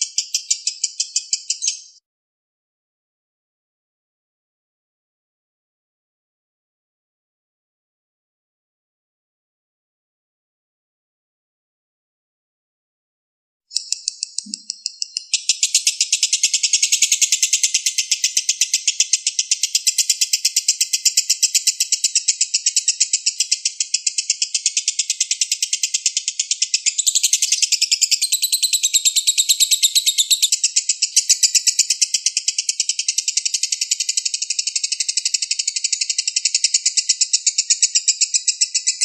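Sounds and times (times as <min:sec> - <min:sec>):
bird trilling: 0:00.0 - 0:02.0, 0:13.7 - 0:39.0.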